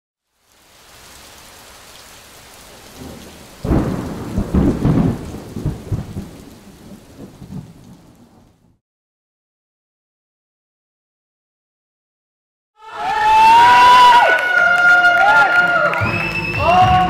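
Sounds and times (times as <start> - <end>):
rain hissing: 0.2 - 8.7
thunder clap rumbling: 2.9 - 8.8.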